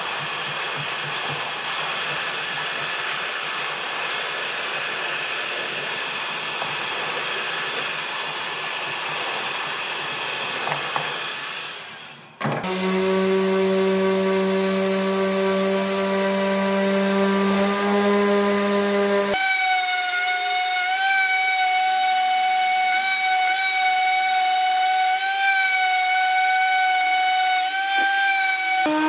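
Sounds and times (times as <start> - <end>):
heat gun blowing: 0.0 - 24.6, 25.2 - 29.0
orbital sander humming on wood: 12.6 - 19.6.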